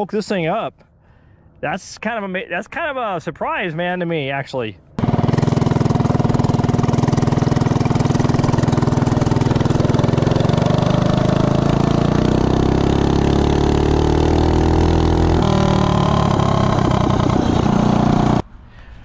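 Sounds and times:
single-cylinder engine running hard: 5.0 - 18.4.

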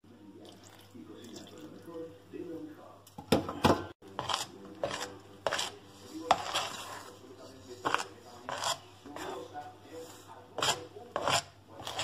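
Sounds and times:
fork scraping a bowl: 4.1 - 12.0.

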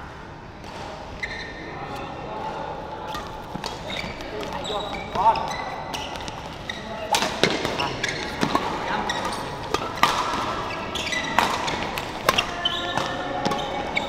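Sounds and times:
shoes squeaking on court floor: 1.2 - 2.2, 3.0 - 14.0
racket hitting shuttlecock: 5.9 - 14.0.

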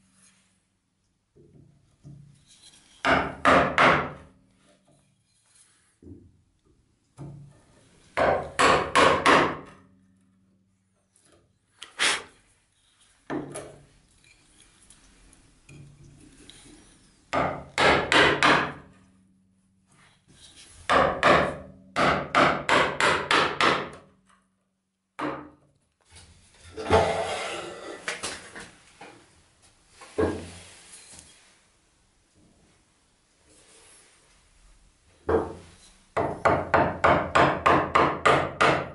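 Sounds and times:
mallet striking chisel: 8.2 - 9.8, 17.4 - 18.8, 20.9 - 24.0
chisel scraping wood: 26.6 - 28.2.

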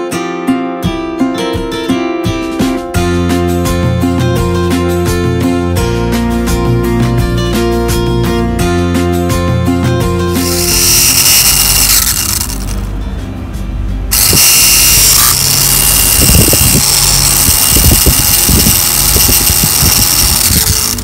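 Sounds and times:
small motor whining through gears: 10.3 - 12.9, 14.1 - 21.0.

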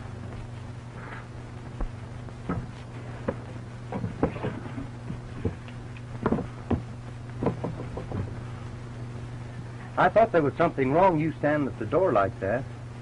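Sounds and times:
steady low hum: 0.0 - 13.0
knocks and thumps: 1.8 - 5.6, 6.2 - 8.4.

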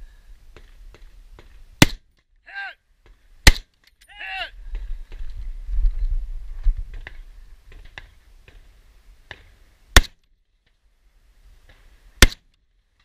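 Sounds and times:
rifle shot: 1.8 - 2.0, 3.4 - 3.7, 10.0 - 10.2, 12.2 - 12.5.

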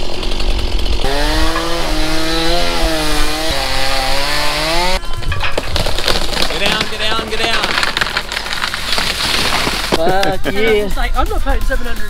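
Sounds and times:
chainsaw running hard: 0.0 - 5.0, 7.7 - 10.0.

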